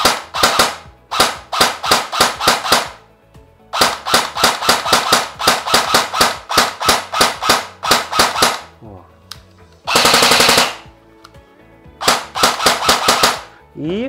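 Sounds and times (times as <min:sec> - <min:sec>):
airsoft rifle shots: 0:00.0 - 0:03.0, 0:03.7 - 0:08.8, 0:09.9 - 0:10.9, 0:12.0 - 0:13.6.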